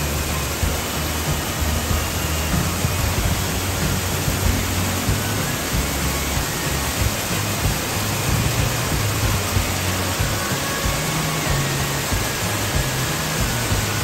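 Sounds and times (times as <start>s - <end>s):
small waterfall rushing: 0.0s - 14.0s.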